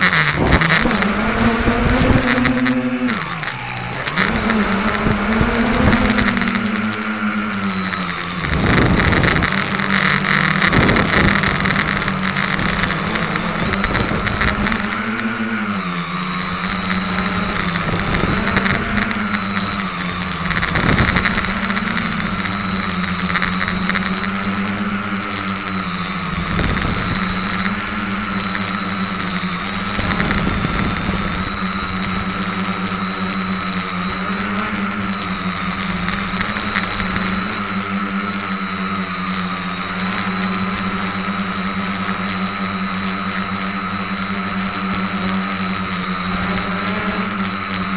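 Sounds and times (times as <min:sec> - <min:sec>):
quadcopter propellers whirring: 0:00.0 - 0:47.9
wind rushing on microphone: 0:07.6 - 0:09.8, 0:10.4 - 0:25.2, 0:25.9 - 0:33.5.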